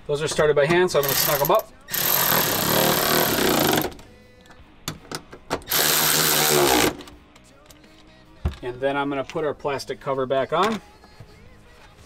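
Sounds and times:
cordless electric ratchet: 0:01.0 - 0:04.0, 0:05.7 - 0:07.0.

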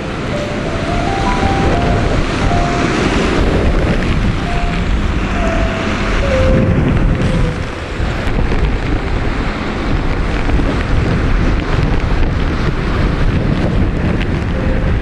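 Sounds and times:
wind gusts on microphone: 0:00.0 - 0:15.0.

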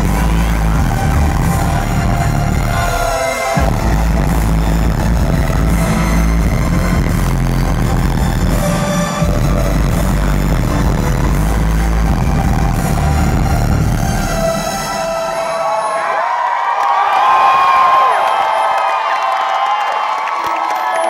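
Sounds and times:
loud electronic music with heavy bass: 0:00.0 - 0:16.5.

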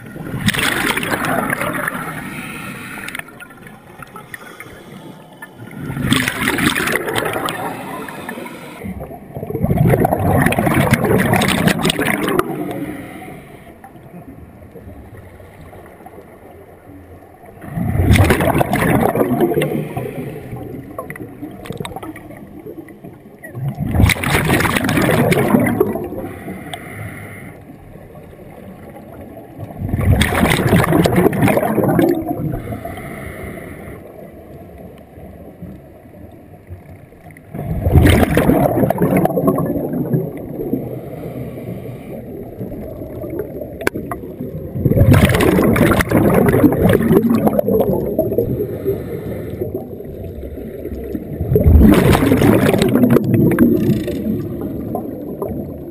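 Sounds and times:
gurgling exhaled bubbles: 0:00.0 - 0:13.2, 0:17.3 - 0:26.6, 0:27.9 - 0:33.0, 0:37.5 - 0:41.4, 0:42.1 - 0:55.9
regulator inhalation hiss: 0:48.7 - 0:49.6.

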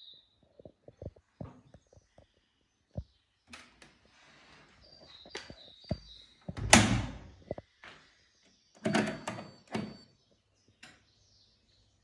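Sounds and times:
knocks and clicks: 0:05.4 - 0:07.6, 0:08.8 - 0:10.0
washing machine door thunk: 0:06.6 - 0:07.3.

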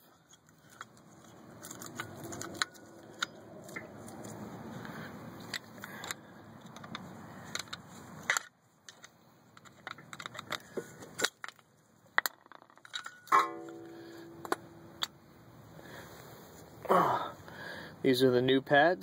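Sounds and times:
metal clicks and knocks: 0:05.4 - 0:15.2
struck metal ringing: 0:13.1 - 0:15.0.

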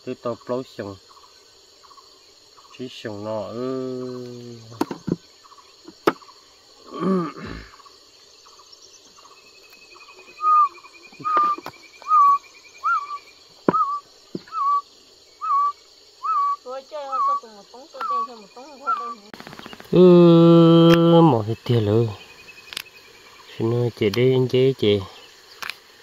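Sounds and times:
insects buzzing: 0:00.0 - 0:26.0
bird whistling short notes: 0:10.4 - 0:14.8, 0:15.4 - 0:16.6.

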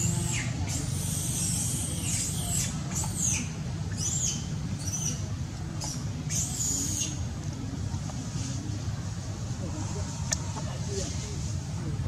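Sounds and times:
monkey squeaking: 0:00.0 - 0:05.2, 0:05.8 - 0:07.2
steady low rumble: 0:00.0 - 0:12.0.

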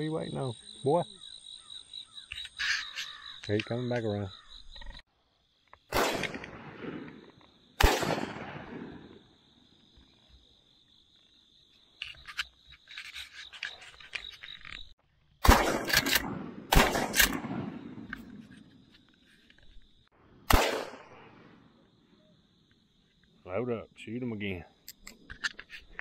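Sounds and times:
shotgun shots: 0:05.9 - 0:07.2, 0:07.8 - 0:09.2, 0:15.4 - 0:18.1, 0:20.5 - 0:21.6
gun handling clicks: 0:15.7 - 0:18.4.

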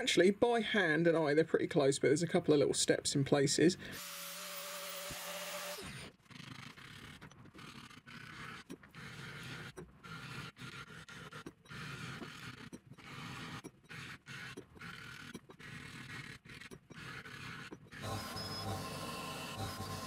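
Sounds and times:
file scraping metal: 0:04.0 - 0:20.0.

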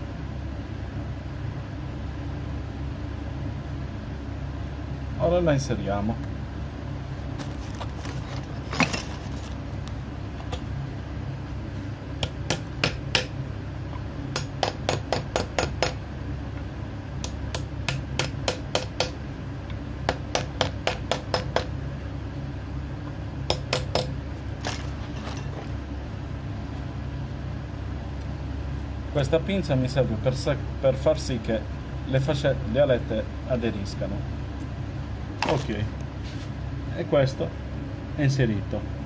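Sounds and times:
small hammer tapping metal: 0:14.3 - 0:16.0, 0:17.2 - 0:19.2, 0:23.5 - 0:24.1.

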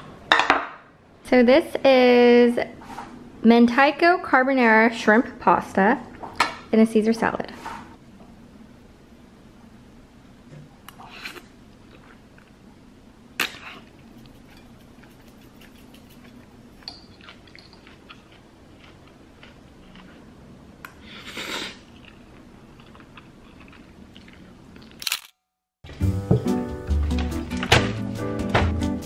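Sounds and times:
low room hum: 0:00.0 - 0:25.3
soft chewing: 0:10.9 - 0:12.6, 0:13.4 - 0:20.3, 0:21.8 - 0:25.0
fork scraping plate: 0:13.6 - 0:16.4.

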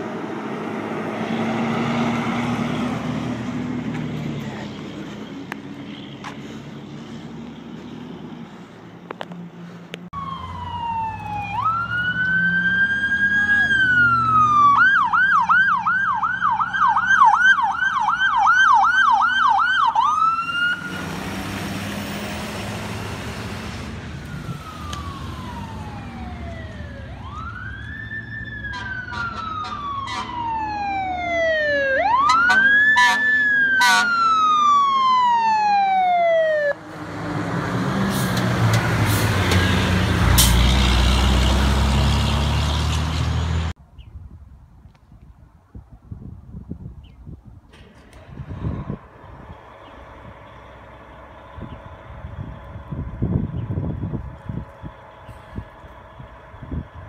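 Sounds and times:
fire engine rumbling past: 0:00.0 - 0:43.8, 0:47.6 - 0:57.0
electronic sirens: 0:10.2 - 0:21.2, 0:24.1 - 0:36.9.

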